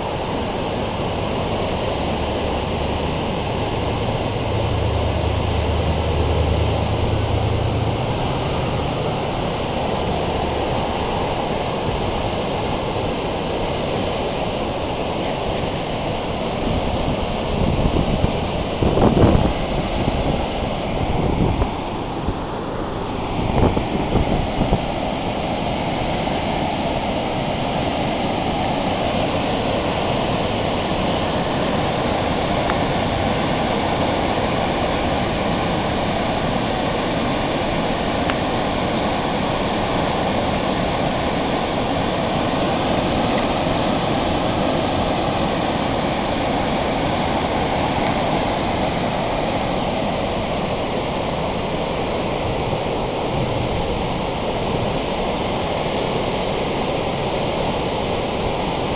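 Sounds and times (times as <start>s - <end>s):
river pouring over dam spillway: 0.0s - 58.9s
water crashing into whitewater: 0.0s - 58.9s.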